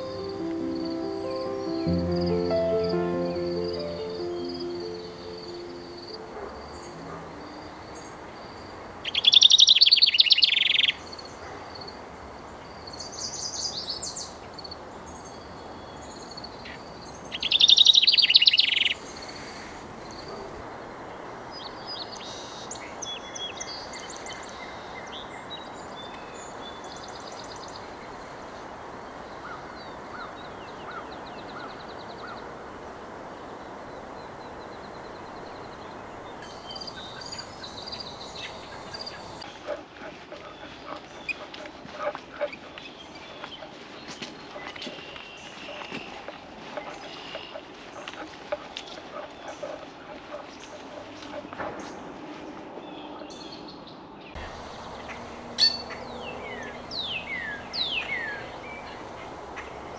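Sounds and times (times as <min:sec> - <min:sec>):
wren trilled song: 0:00.0 - 0:08.1, 0:36.2 - 0:39.4, 0:54.4 - 0:59.9
background hiss: 0:00.0 - 0:11.4, 0:12.0 - 0:39.4, 0:54.4 - 0:59.9
faint bird calls: 0:54.4 - 0:59.9.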